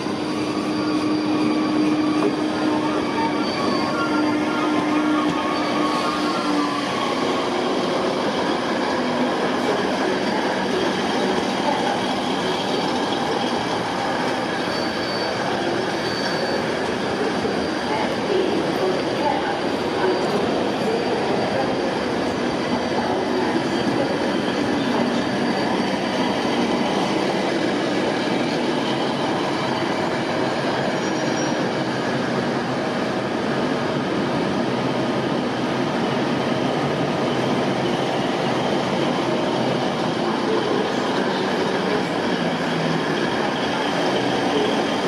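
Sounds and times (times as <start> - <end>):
high-pitched wheel squeal: 0.0 - 32.0
train wheels on rails: 0.0 - 45.0.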